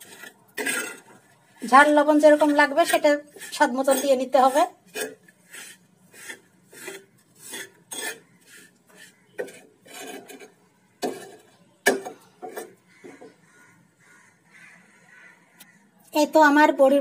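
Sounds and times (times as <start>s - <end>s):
metal spatula scraping a frying pan: 0.0s - 13.2s.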